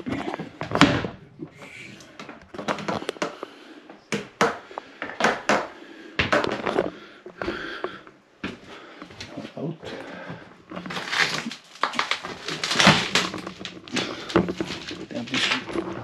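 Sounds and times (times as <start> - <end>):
footsteps on wood: 5.0 - 10.9
knocks and clatters: 10.7 - 16.0.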